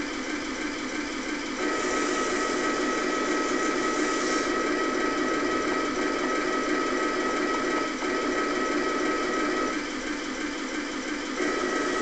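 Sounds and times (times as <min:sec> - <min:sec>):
small electric motor whining: 0:01.6 - 0:09.8.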